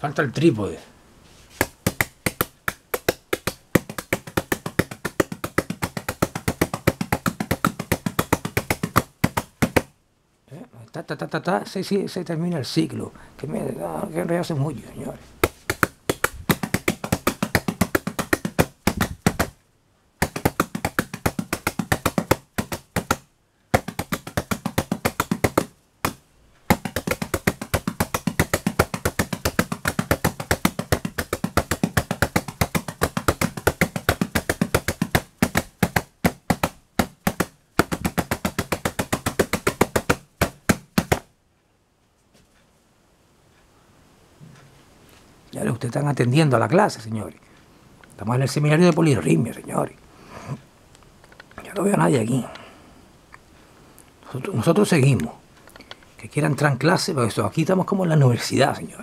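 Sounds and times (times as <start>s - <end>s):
drum brushes tapped fast: 1.5s - 9.9s, 15.4s - 19.6s, 20.2s - 41.3s.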